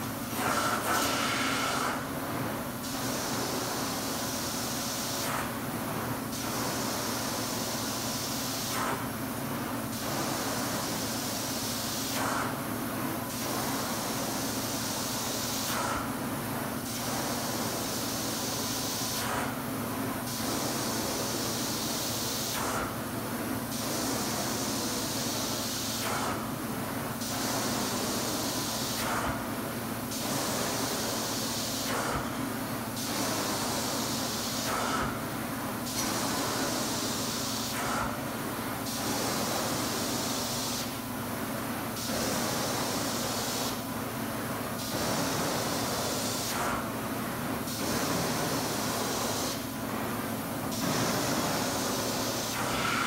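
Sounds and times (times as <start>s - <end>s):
carpet cleaner suction hiss: 0.3s - 2.0s, 30.1s - 32.4s, 50.8s - 53.0s.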